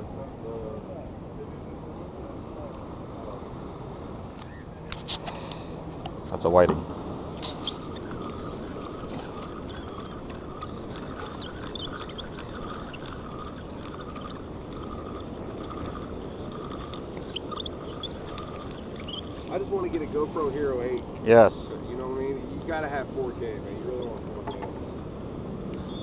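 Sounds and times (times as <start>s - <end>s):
fishing reel squeaking: 7.4s - 19.9s.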